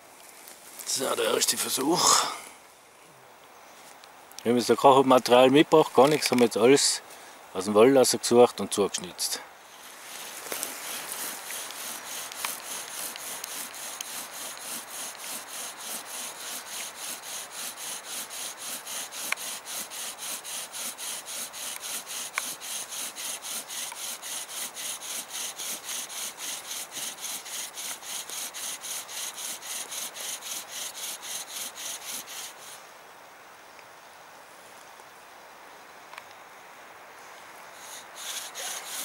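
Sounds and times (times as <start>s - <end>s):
wooden spindle rasping in hearth board: 10.0s - 32.8s, 37.8s - 39.0s.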